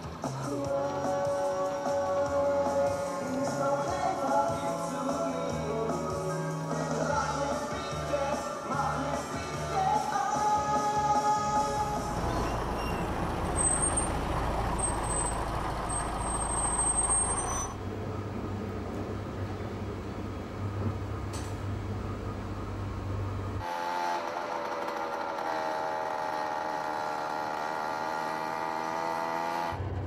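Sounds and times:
bus engine running: 0.0 - 23.7, 29.7 - 30.0
moped engine drone: 0.0 - 30.0
train hum from inside: 11.8 - 23.6
high brake squeals: 11.9 - 17.9.

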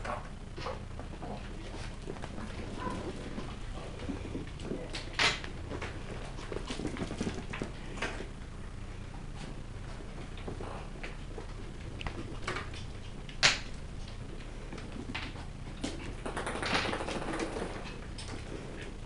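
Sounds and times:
puppy claws clicking on wood floor: 10.2 - 18.9.

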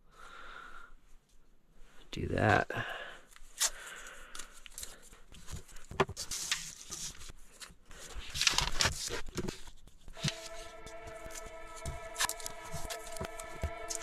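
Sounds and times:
tape being pulled and torn: 3.3 - 3.8, 8.3 - 14.0
paper sheets rustling: 4.7 - 14.0.

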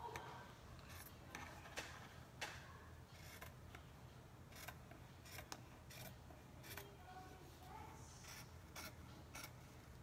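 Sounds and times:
scissors snipping fabric: 4.5 - 6.9, 8.2 - 9.6.

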